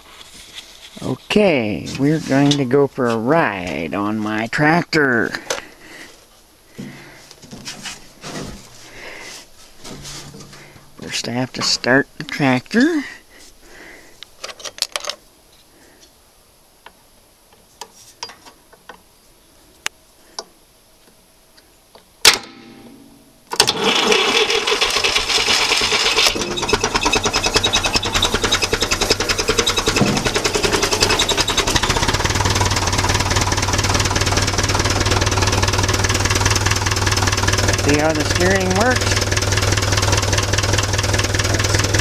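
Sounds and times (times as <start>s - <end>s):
tractor engine idling: 6.8s - 13.3s, 23.6s - 42.0s
starter cranking clunk: 23.5s - 42.0s.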